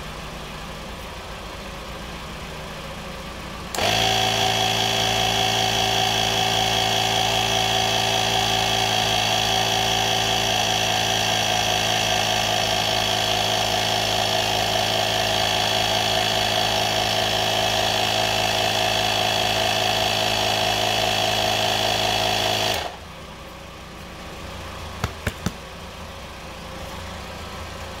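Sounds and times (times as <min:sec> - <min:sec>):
air compressor running: 0:03.7 - 0:23.2, 0:24.9 - 0:25.8.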